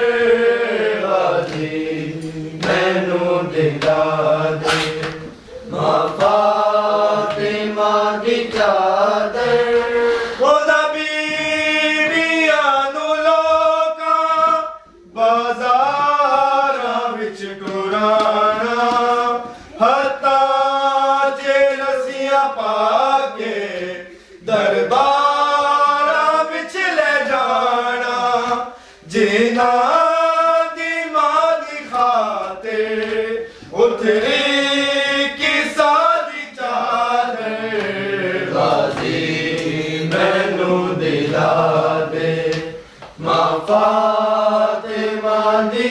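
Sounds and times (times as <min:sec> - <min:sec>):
men chanting a lament: 0:00.0 - 0:45.9.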